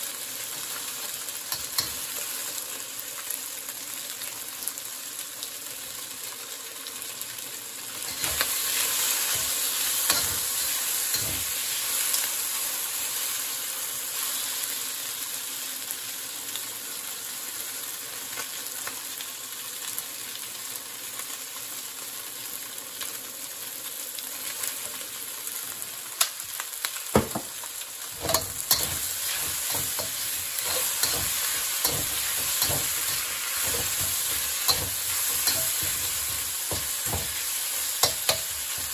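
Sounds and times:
chicken sizzling in a wok: 0.0s - 38.9s
metal spatula scraping a wok: 8.1s - 11.6s, 28.2s - 38.9s
butane torch hissing: 28.1s - 38.9s.

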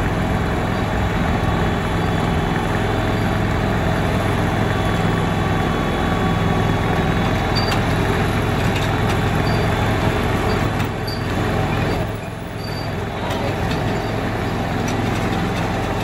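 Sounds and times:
wheels on track: 0.0s - 16.0s.

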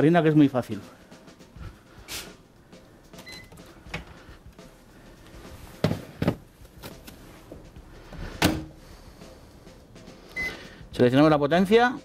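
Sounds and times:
microwave beep: 3.2s - 3.6s, 10.4s - 10.6s.

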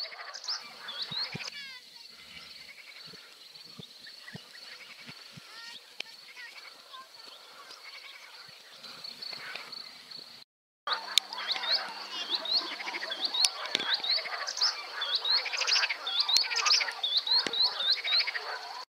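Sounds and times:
birds trilling and warbling: 0.0s - 18.9s
bird repeating upslurred chirp: 10.9s - 18.8s.

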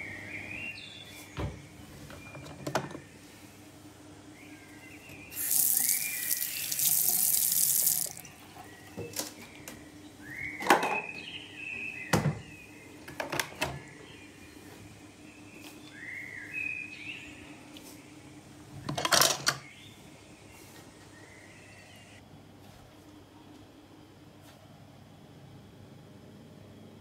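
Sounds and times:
water running into sink basin: 5.3s - 8.4s.

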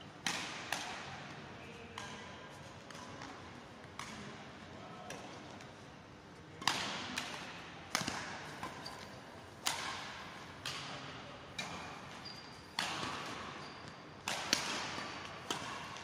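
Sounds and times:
racquets hitting shuttlecock: 0.2s - 1.4s, 6.6s - 16.0s.

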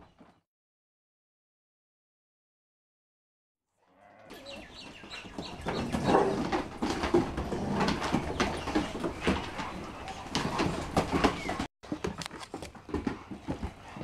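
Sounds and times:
dogs vocalizing: 4.5s - 11.7s
dog claws clicking on wooden deck: 5.3s - 14.0s.

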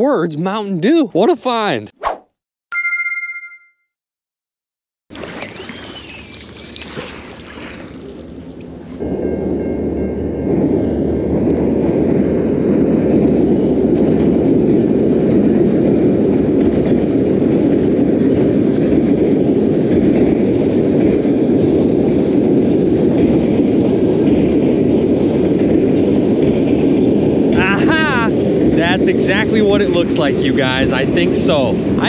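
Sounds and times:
train wheels rumbling on bridge: 9.0s - 32.0s.

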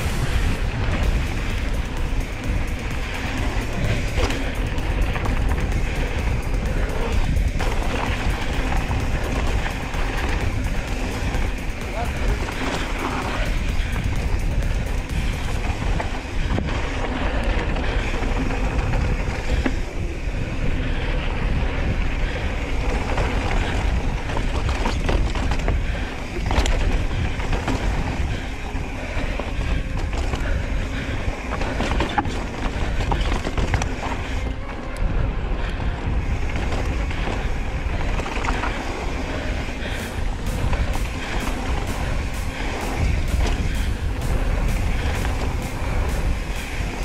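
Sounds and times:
bike frame and chain rattling: 0.0s - 47.0s
tyres rolling on dirt: 0.0s - 47.0s
wind rushing over microphone: 0.0s - 47.0s.

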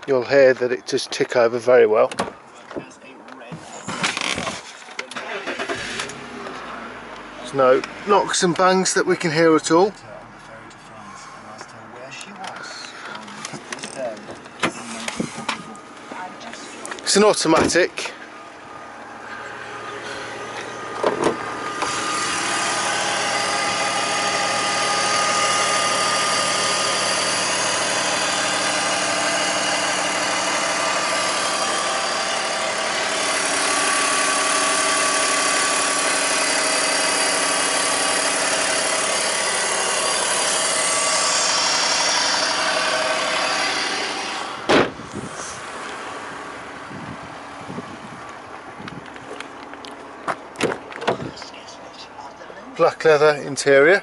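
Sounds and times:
car engine idling: 5.1s - 54.0s
sharp thud: 44.7s - 45.0s.

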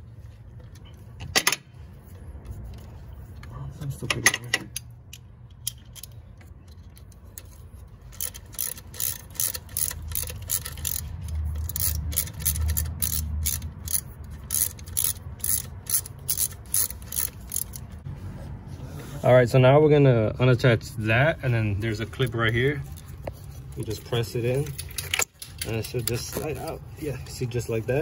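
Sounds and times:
ratchet wrench clicking: 4.7s - 18.0s.

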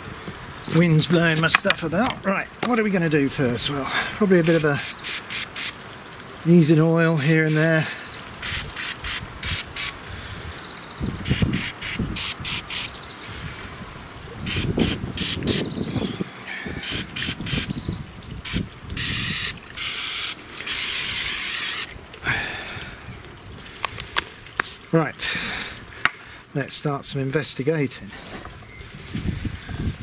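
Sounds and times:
spray can spraying: 4.4s - 5.8s, 7.2s - 10.0s, 11.3s - 12.9s, 14.5s - 15.7s, 16.8s - 17.7s, 18.4s - 21.9s.

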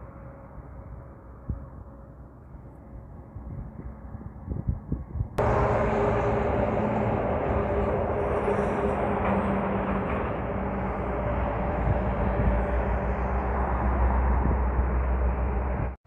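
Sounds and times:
road noise: 5.4s - 16.0s
vehicle engine humming: 5.4s - 16.0s.

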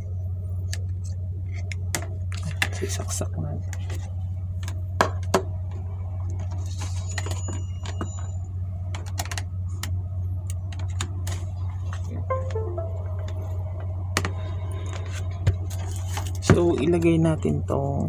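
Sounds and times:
steady low hum: 9.5s - 16.0s.

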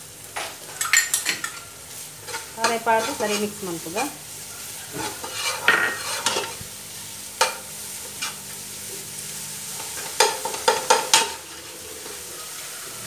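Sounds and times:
light sizzle: 0.0s - 13.0s
metal ladle scraping a pot: 5.0s - 6.5s.

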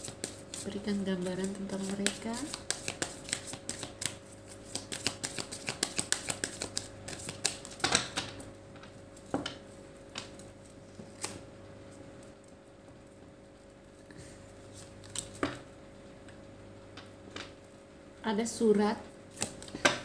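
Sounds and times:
cards being shuffled: 0.0s - 8.4s, 14.7s - 15.6s, 19.3s - 20.0s.

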